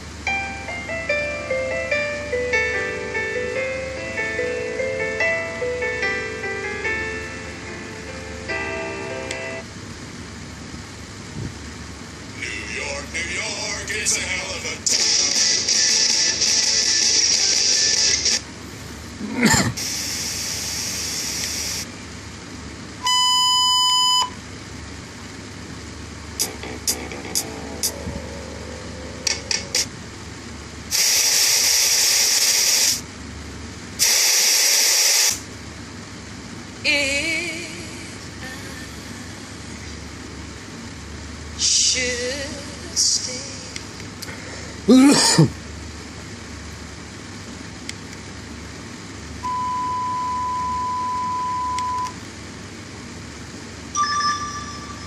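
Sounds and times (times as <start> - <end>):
loud hiss-like noise bursts: 14.8 - 18.8, 19.5 - 22.0, 30.8 - 33.2, 34.0 - 35.6
high beeps: 23.0 - 24.4, 49.4 - 52.2, 54.0 - 55.0
single-pitch test tone: 23.0 - 24.4, 49.4 - 52.2, 54.0 - 55.0
low hum: 26.2 - 30.9.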